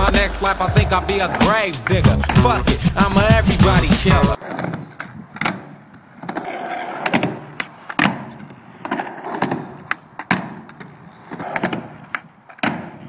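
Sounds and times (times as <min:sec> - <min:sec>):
skateboard wheels rolling on ramp: 0:00.0 - 0:13.0
skateboard clacking on ramp: 0:04.5 - 0:13.0.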